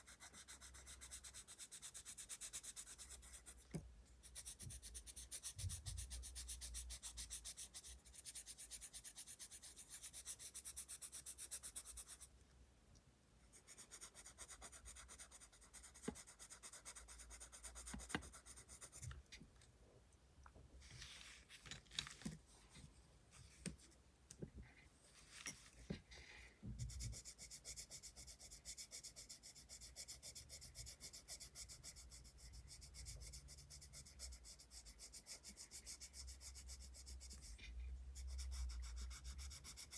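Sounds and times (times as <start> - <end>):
pencil scratching on paper: 0.0 - 12.3, 13.5 - 19.2, 26.8 - 39.9.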